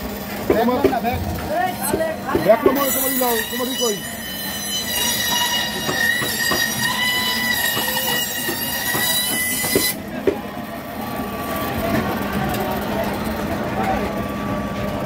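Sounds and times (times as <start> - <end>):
band saw cutting fish: 1.8 - 10.0.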